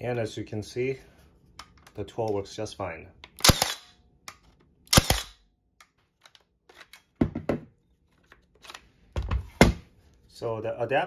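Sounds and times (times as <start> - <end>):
nailer firing snap: 4.9 - 5.3.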